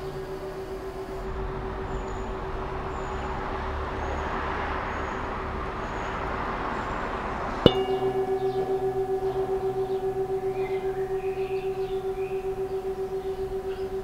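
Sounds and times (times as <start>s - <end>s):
faint held tone: 7.7s - 14.0s
metal singing bowl ringing: 7.7s - 14.0s.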